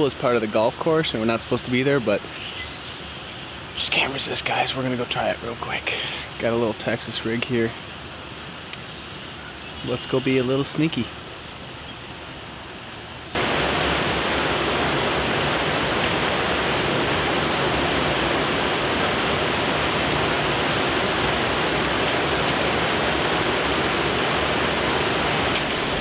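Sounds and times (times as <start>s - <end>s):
water rushing over spillway: 13.3s - 26.0s.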